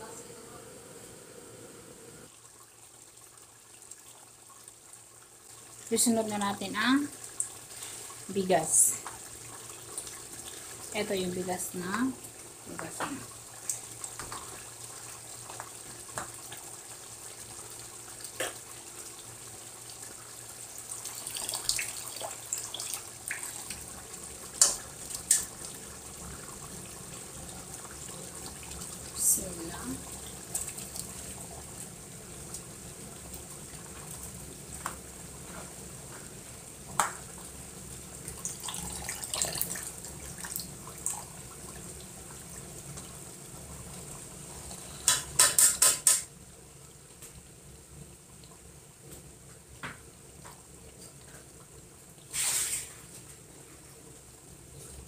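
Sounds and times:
steady hiss: 52.2 - 55.0
short scrape: 52.3 - 53.0.

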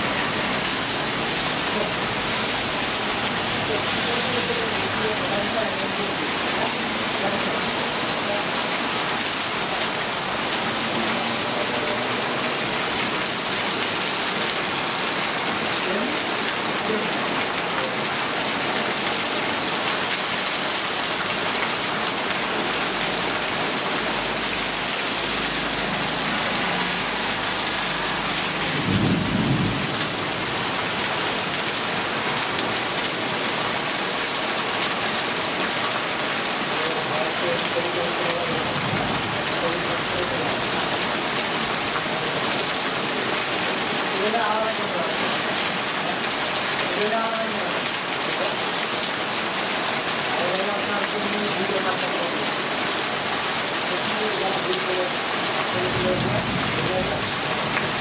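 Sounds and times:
water streaming into a puddle: 0.0 - 28.7
heavy rain pouring: 0.0 - 58.0
low rumble of thunder: 28.7 - 30.7.

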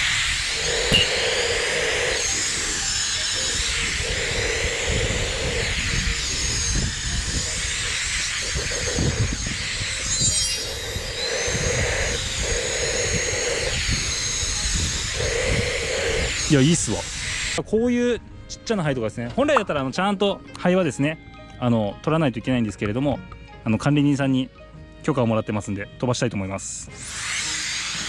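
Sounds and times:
air duster hissing: 0.0 - 17.6, 27.0 - 28.0
wind buffeting microphone: 0.0 - 18.5.

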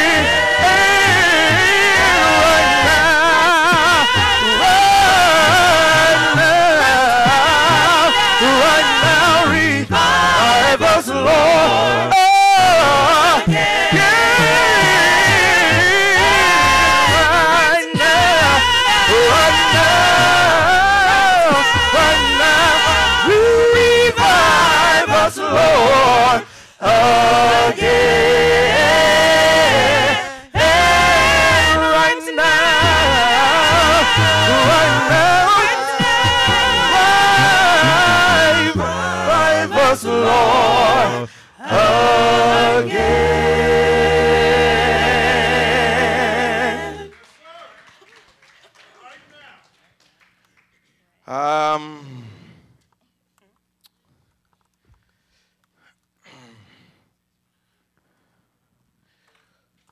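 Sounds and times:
gospel group singing: 0.0 - 47.2.

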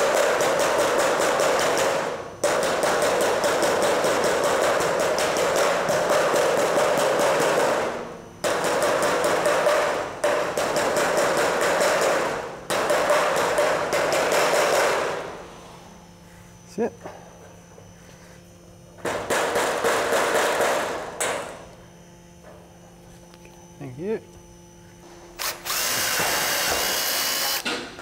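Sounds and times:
hammer striking steel panel: 8.4 - 15.1, 19.0 - 21.5.

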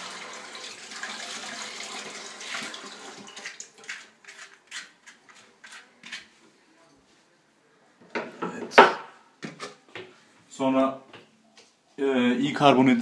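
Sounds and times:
spoon scraping avocado: 3.4 - 6.4.

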